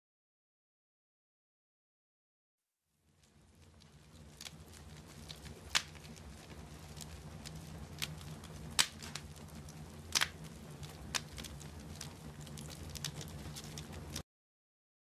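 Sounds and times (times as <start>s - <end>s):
wood fire crackling: 2.9s - 14.2s
low steady hum: 3.0s - 14.2s.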